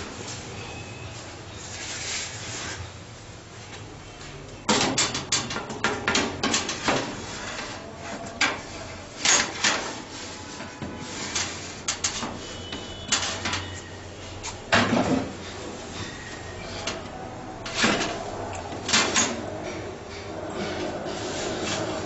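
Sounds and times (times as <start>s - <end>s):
metal tray scraping oven racks: 4.7s - 22.0s.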